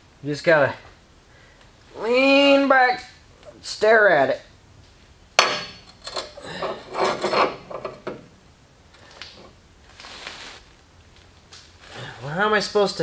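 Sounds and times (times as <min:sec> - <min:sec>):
metal part scraping and rubbing: 0:05.6 - 0:08.3.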